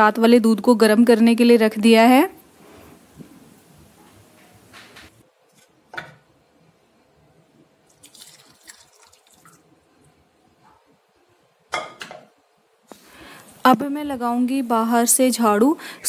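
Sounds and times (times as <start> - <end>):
tea pouring through strainer: 7.9 - 9.8.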